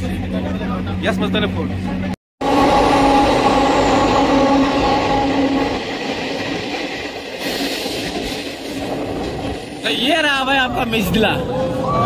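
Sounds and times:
train rumble in tunnel: 0.0s - 12.0s
humming tone: 2.4s - 6.6s.

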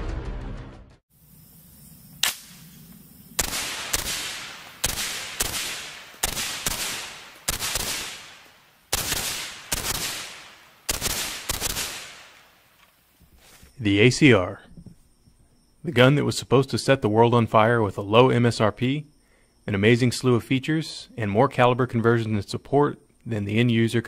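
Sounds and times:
suppressed rifle shots: 2.2s - 12.5s
ringing echo of gunshots: 3.4s - 12.4s.

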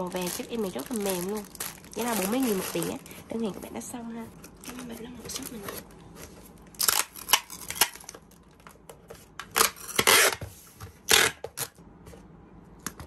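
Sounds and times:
packing tape rasping off dispenser: 9.4s - 10.4s, 11.0s - 11.8s.

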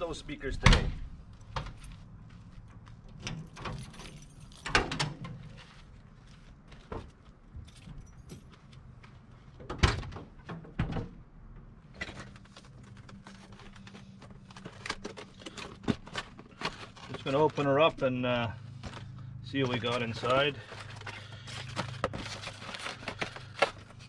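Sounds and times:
keys jangling: 3.2s - 4.8s.

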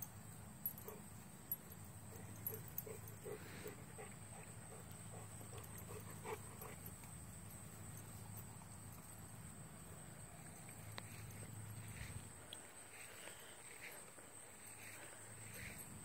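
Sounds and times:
dog panting: 2.1s - 6.9s.

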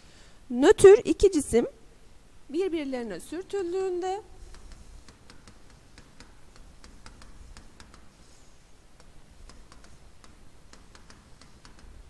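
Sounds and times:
stylus tapping on tablet screen: 4.4s - 12.0s.

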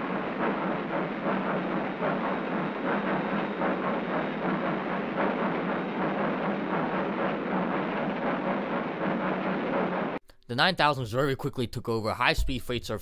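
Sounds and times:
steam locomotive exhaust rumble: 0.0s - 10.2s.

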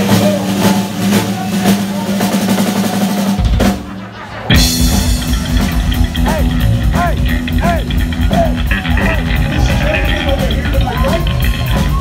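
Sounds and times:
heavy metal band playing live: 0.0s - 12.0s
rapid bass drum: 0.0s - 12.0s
distorted electric guitar: 3.4s - 12.0s.

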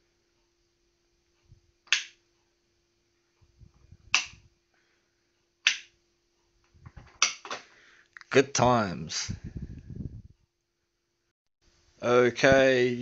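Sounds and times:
light switch clicks: 1.9s - 2.2s, 4.1s - 4.4s.

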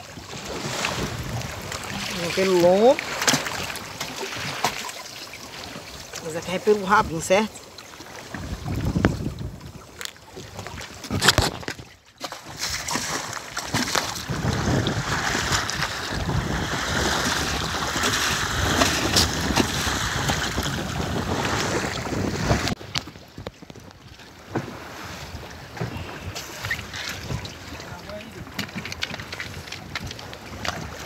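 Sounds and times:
sea waves washing around boat: 0.0s - 31.0s
wind buffeting microphone: 0.1s - 2.8s, 8.3s - 9.9s, 14.1s - 23.8s.

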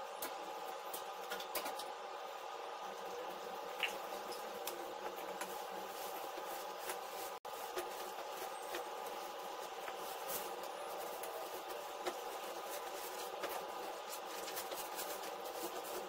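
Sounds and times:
steady hum: 0.0s - 16.0s
bed linen rustling: 4.2s - 16.0s.

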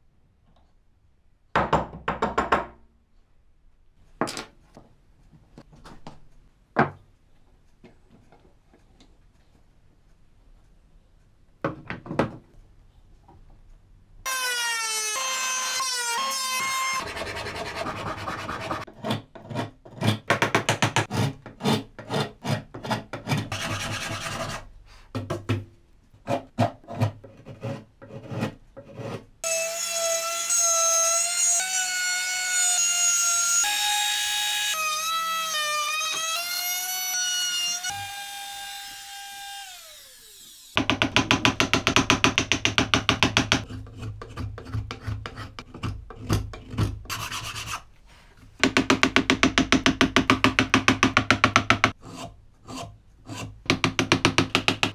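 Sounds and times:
handsaw cutting wood: 15.4s - 18.9s, 21.0s - 24.7s, 46.6s - 47.9s.

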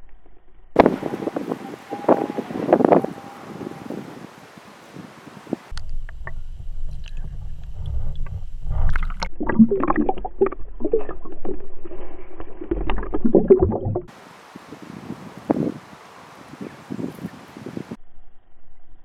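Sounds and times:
faint wind: 0.8s - 12.3s, 13.4s - 19.0s
low rumble: 5.7s - 14.1s
muffled water sloshing and splashing: 8.5s - 14.1s.

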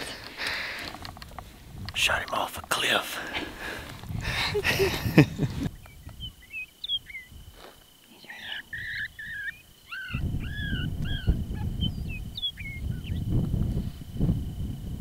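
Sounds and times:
high yelping calls: 8.4s - 13.2s.

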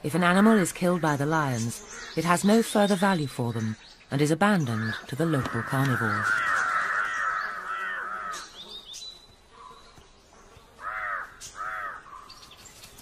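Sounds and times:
crows cawing: 1.9s - 2.2s, 4.6s - 8.6s, 10.8s - 12.5s.

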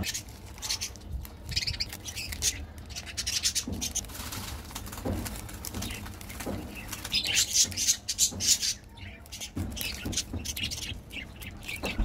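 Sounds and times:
plastic wrapper crinkling: 0.0s - 7.9s.

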